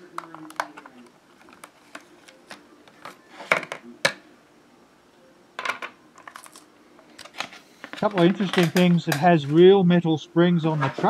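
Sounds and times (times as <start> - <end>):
plastic packaging clicking and crackling: 0.1 - 3.8, 6.2 - 9.2.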